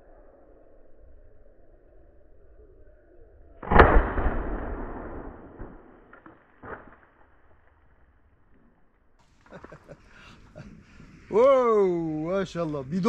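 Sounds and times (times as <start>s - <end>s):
rumbling echo: 3.6s - 7.0s
shotgun shot: 3.6s - 7.2s.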